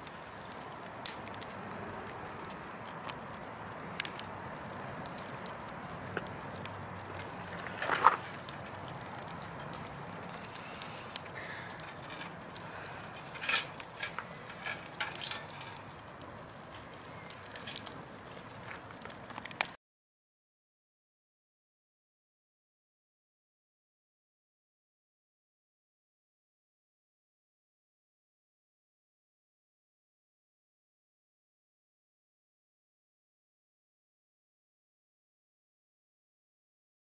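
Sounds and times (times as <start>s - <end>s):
bonfire flame rushing: 0.0s - 19.8s
fire crackles and pops: 0.0s - 19.8s.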